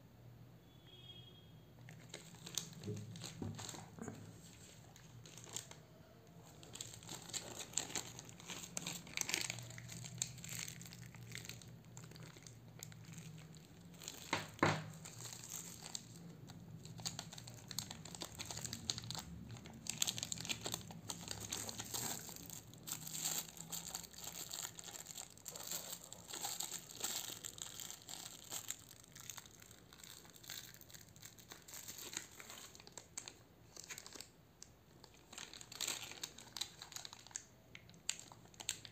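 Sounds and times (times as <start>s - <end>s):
plastic bags crinkling: 1.9s - 38.9s.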